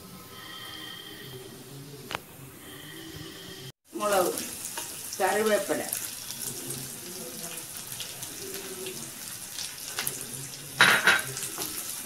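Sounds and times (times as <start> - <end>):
spices sizzling in hot oil: 3.8 - 12.0.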